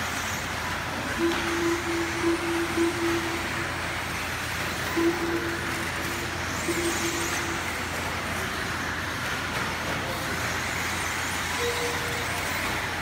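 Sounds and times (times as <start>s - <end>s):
rc cars motors and tyres hissing: 0.0s - 13.0s
short steady tones: 1.1s - 4.2s, 4.8s - 8.0s.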